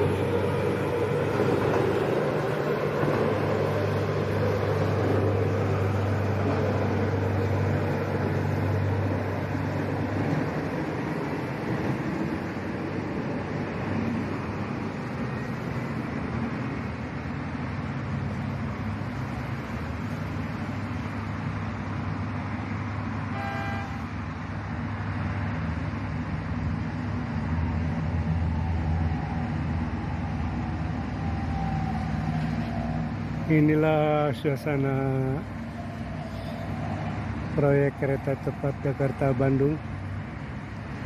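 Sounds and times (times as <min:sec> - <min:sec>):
traffic rumble: 0:00.0 - 0:41.0
car horn toot: 0:23.3 - 0:24.1.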